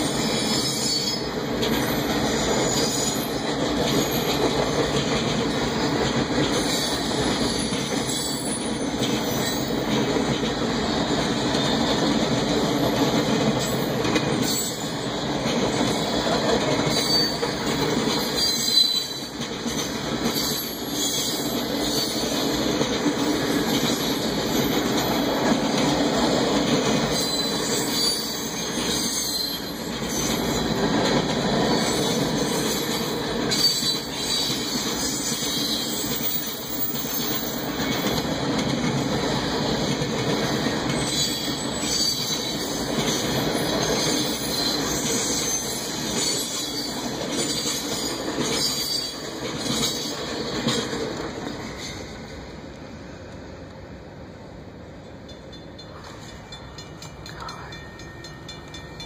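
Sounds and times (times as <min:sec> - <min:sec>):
high wheel squeals: 0:00.0 - 0:04.4, 0:16.9 - 0:17.6, 0:18.2 - 0:22.3, 0:27.1 - 0:30.6, 0:31.7 - 0:38.0
train wheels rumbling on rail: 0:00.0 - 0:59.0
clicking over rail joints: 0:02.8 - 0:14.8, 0:34.7 - 0:52.0, 0:55.0 - 0:59.0.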